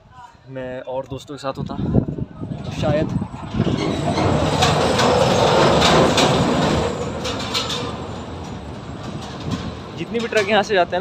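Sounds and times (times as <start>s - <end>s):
truck rumbling over bridge: 2.4s - 11.0s
clattering knocks: 3.5s - 10.8s.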